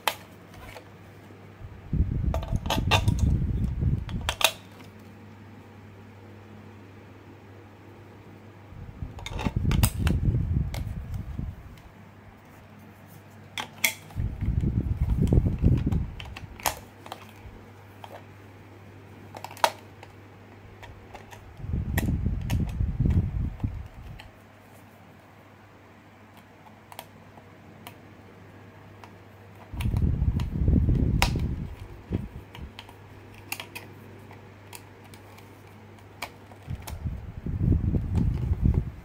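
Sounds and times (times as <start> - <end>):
plastic toy handling noise: 0.0 - 1.2, 2.3 - 3.4, 4.0 - 5.1, 9.1 - 11.8, 12.4 - 18.5, 19.1 - 25.1, 28.9 - 37.3
steady low hum: 0.0 - 39.0
sharp plastic clicks: 13.6 - 18.3, 19.3 - 24.4, 29.0 - 37.2.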